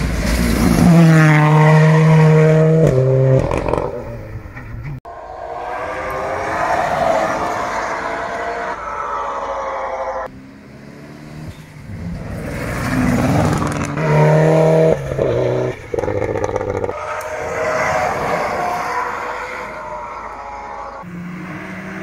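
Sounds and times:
rally car engines revving past: 9.8 - 18.9.

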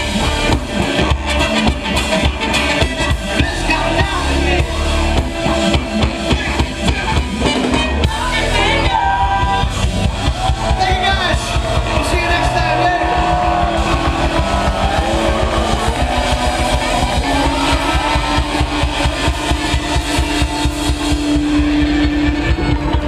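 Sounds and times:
funk band playing live: 0.0 - 23.0
person singing: 6.3 - 9.8.

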